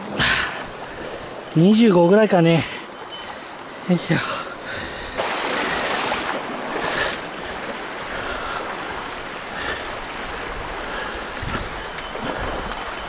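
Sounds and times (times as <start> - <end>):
stream rushing over stones: 5.1 - 13.0.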